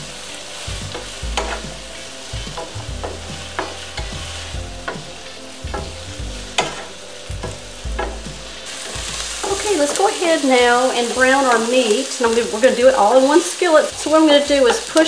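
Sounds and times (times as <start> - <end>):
vegetables sizzling in oil: 0.0 - 15.0
wooden utensil scraping pan: 0.9 - 1.8.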